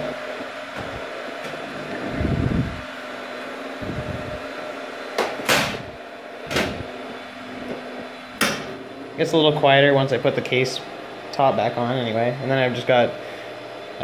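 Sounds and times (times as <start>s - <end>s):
server fans humming: 0.0s - 14.0s.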